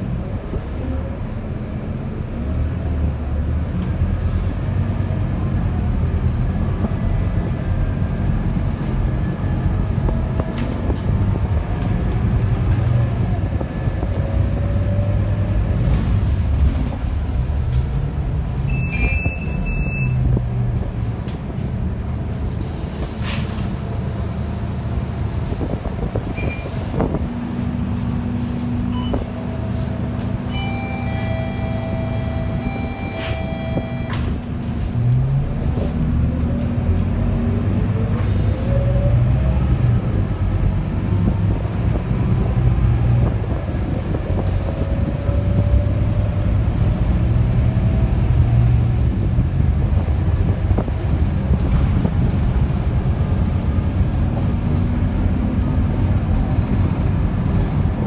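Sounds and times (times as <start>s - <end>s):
bus engine: 0.0s - 58.0s
electronic tone: 30.4s - 34.3s.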